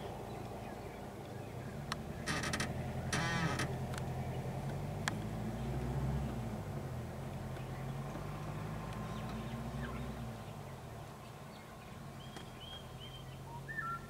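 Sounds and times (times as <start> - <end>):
bird chirps: 11.5 - 14.0.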